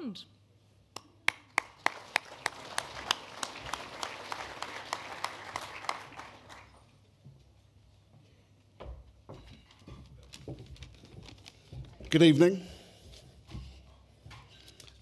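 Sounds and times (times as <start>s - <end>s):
close sharp hand clapping: 0.9s - 6.8s
audience applauding: 1.3s - 6.9s.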